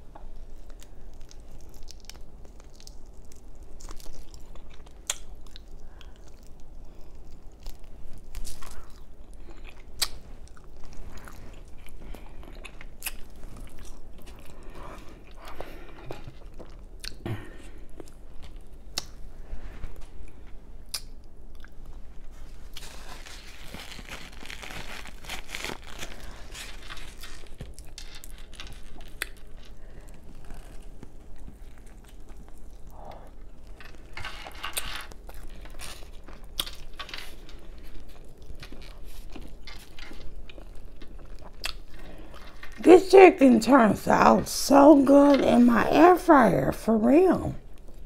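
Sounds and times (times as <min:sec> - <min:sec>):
person chewing chicken: 0:00.4 - 0:19.2, 0:23.8 - 0:42.8.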